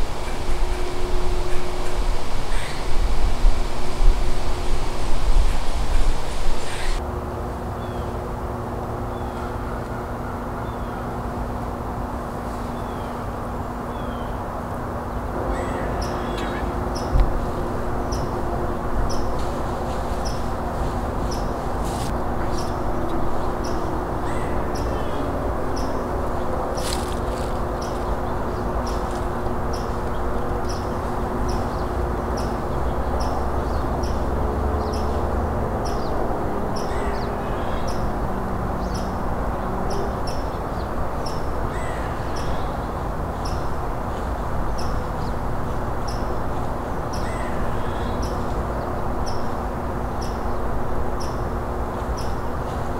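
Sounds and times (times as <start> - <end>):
faint bird calls: 0.0 - 3.2, 6.6 - 7.0, 15.5 - 18.4, 22.4 - 26.0, 47.1 - 48.5
background rush: 0.0 - 52.9.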